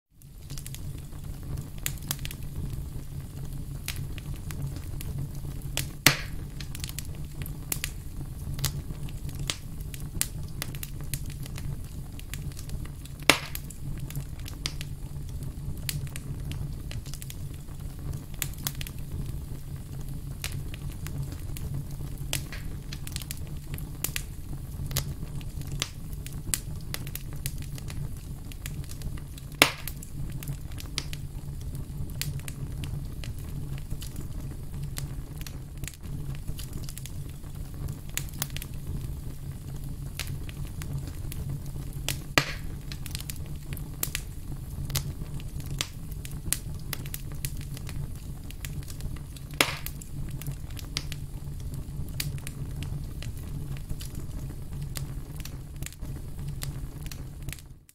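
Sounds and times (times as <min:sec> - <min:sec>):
low fire rumble: 0:00.1 - 0:57.9
campfire crackling: 0:00.2 - 0:57.9
loud fire pops: 0:00.2 - 0:57.9.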